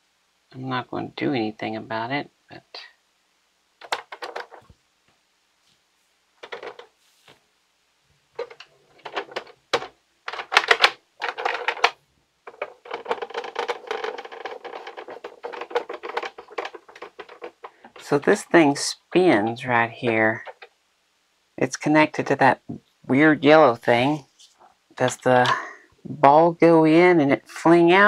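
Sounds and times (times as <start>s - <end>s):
plastic toy parts clicking: 3.8s - 4.7s, 8.4s - 18.2s, 20.3s - 20.7s.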